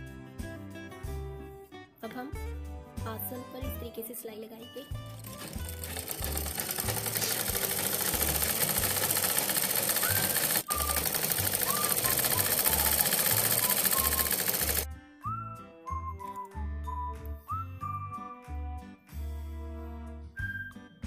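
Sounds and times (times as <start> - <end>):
sewing machine stitching: 5.0 - 14.9.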